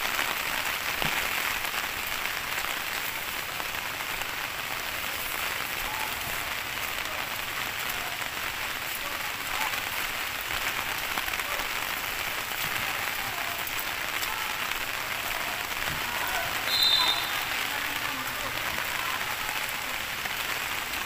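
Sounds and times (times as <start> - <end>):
heavy rain on grass and path: 0.0 - 21.0.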